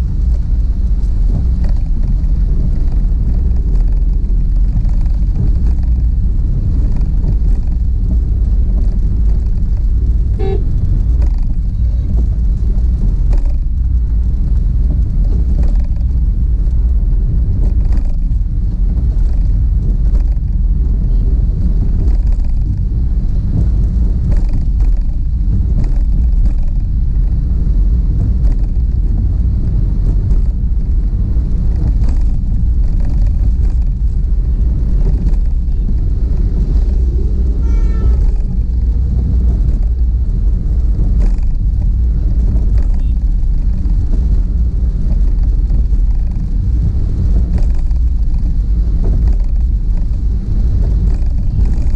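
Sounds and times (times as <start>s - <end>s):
car driving on wet road: 0.0s - 51.9s
vehicle horn toot: 10.4s - 10.7s, 37.5s - 38.2s.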